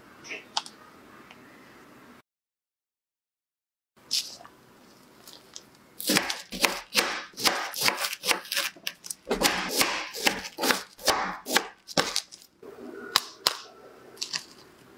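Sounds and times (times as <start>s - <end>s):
knife cutting frozen dessert: 6.0s - 12.4s.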